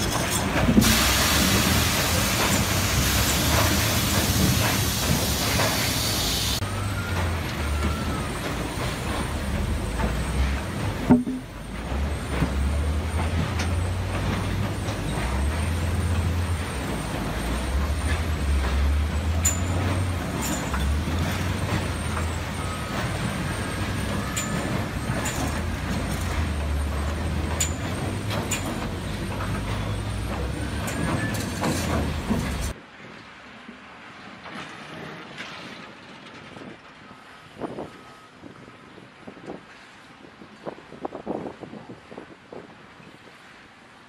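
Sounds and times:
wheel loader diesel engine drone: 0:00.0 - 0:32.8
grapple and logs knocking: 0:11.1 - 0:11.6.

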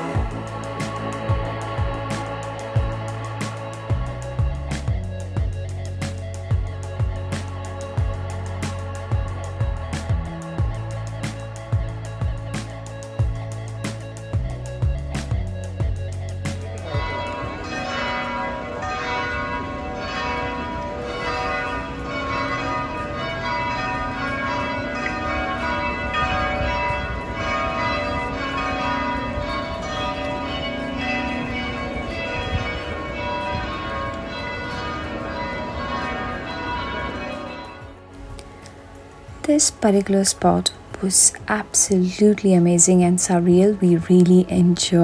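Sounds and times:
church bells ringing: 0:16.8 - 0:38.0.

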